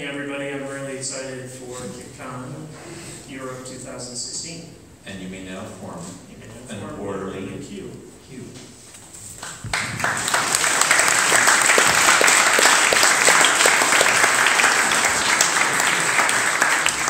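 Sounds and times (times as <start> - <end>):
audience applauding: 9.4 - 17.0.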